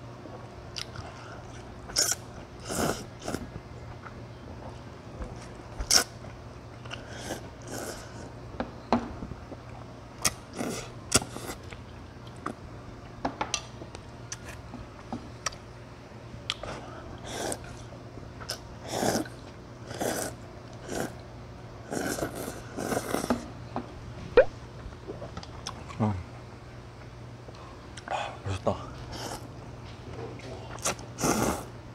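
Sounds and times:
steady low hum: 0:00.0 - 0:31.9
person slurping noodles: 0:01.9 - 0:03.5, 0:07.0 - 0:08.3, 0:10.4 - 0:11.7, 0:17.2 - 0:17.8, 0:18.8 - 0:21.2, 0:21.8 - 0:23.4, 0:29.1 - 0:29.5, 0:30.8 - 0:31.8.

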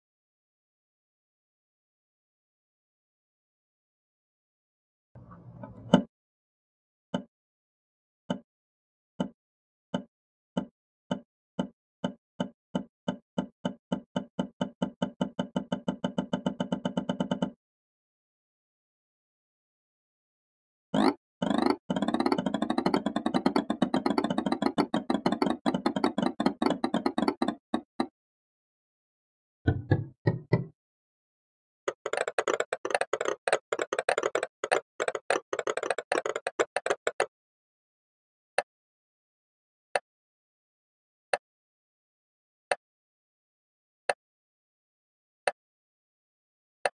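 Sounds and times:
rapid clicks and taps: 0:10.0 - 0:17.6, 0:21.0 - 0:28.1, 0:31.9 - 0:37.3
low knock speeding up: 0:29.7 - 0:30.7.

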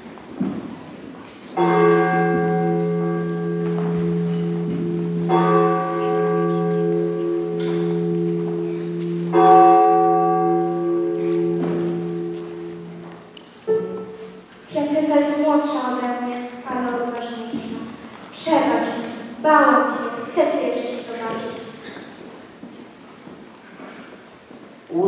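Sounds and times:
church bell tolling: 0:01.5 - 0:15.1.

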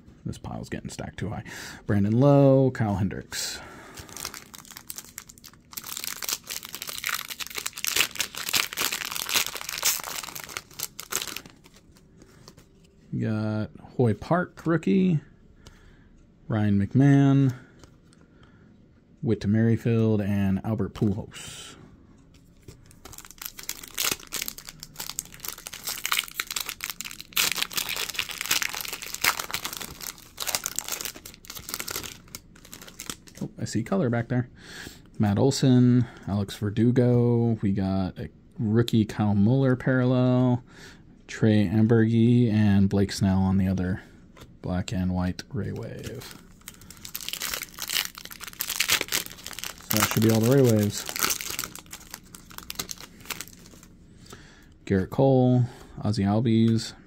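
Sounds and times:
foil wrapper tearing and crinkling: 0:04.1 - 0:11.8, 0:23.0 - 0:33.4, 0:46.0 - 0:53.9.

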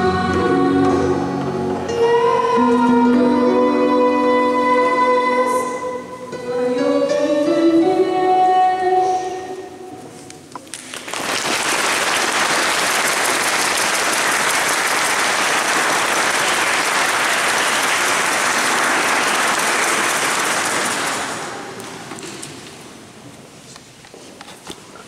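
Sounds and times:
audience applauding: 0:10.7 - 0:22.0.

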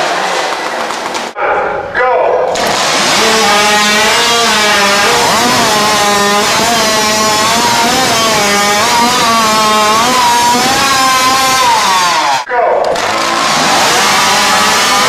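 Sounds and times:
chainsaw running at high revs: 0:02.6 - 0:12.4, 0:13.0 - 0:15.0.

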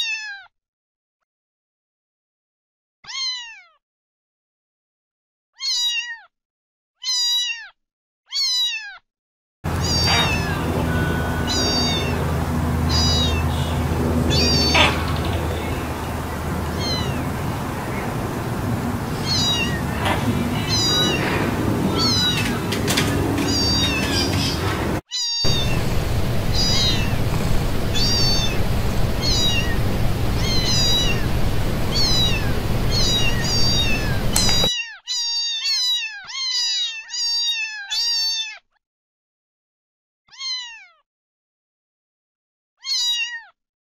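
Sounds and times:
low background noise: 0:09.7 - 0:34.7
cats meowing: 0:09.7 - 0:38.6.

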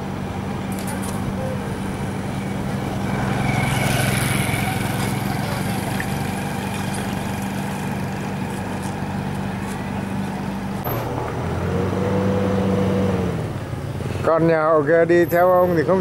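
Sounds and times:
engine idling: 0:00.0 - 0:11.5.

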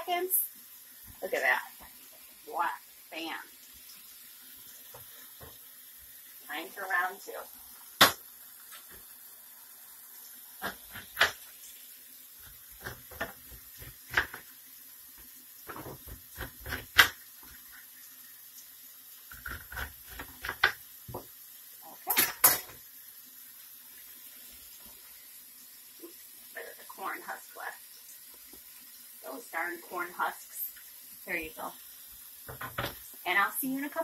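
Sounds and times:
knife knocking on cutting board: 0:32.5 - 0:33.0.

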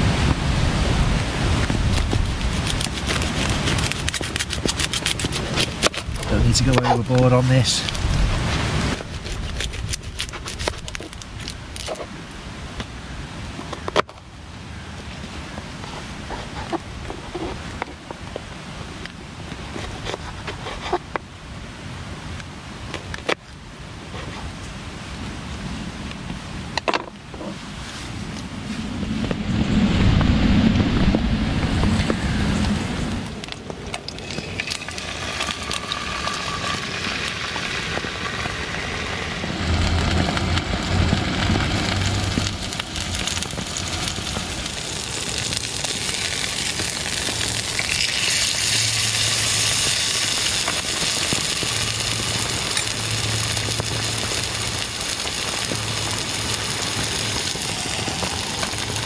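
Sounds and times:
loud low rumble: 0:28.6 - 0:33.4, 0:37.7 - 0:45.9
steak sizzling in a frying pan: 0:34.2 - 0:39.0, 0:41.8 - 0:59.0.

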